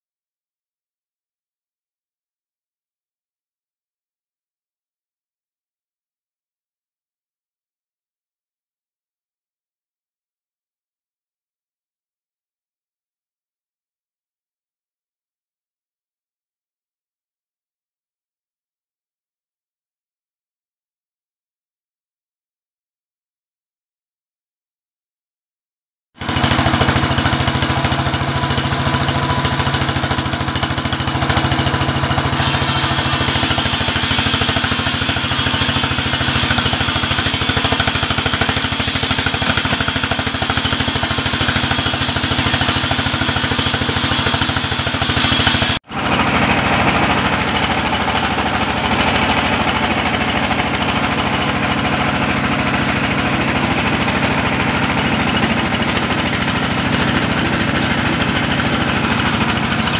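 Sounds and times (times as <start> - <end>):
machinery motor drone with rattle: 26.2 - 59.9.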